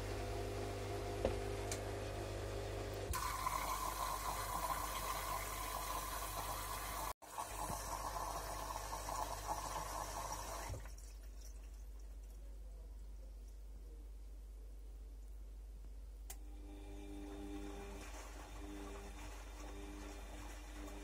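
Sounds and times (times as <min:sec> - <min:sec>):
water hissing into washing machine: 0:03.1 - 0:11.2, 0:16.6 - 0:21.0.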